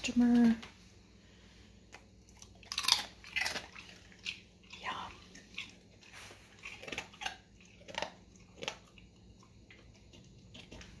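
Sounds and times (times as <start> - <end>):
dog crunching and chewing: 1.9 - 11.0.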